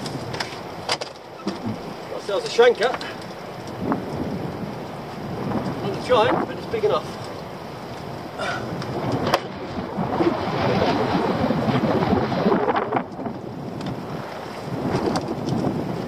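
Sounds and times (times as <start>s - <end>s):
sea slapping against boat hull: 0.0s - 2.0s, 8.8s - 9.6s
wind buffeting microphone: 0.0s - 16.0s.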